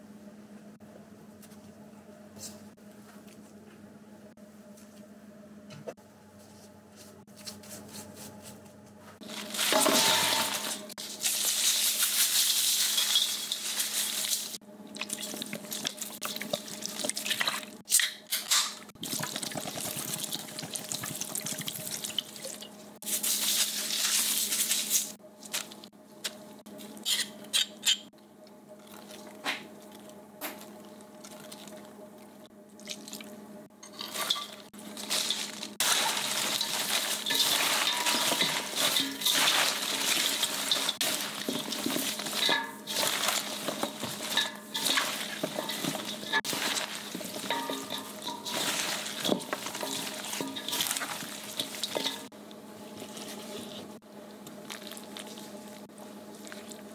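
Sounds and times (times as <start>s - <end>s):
tap water running and splashing: 19.0s - 22.6s
steady low hum: 24.8s - 56.9s.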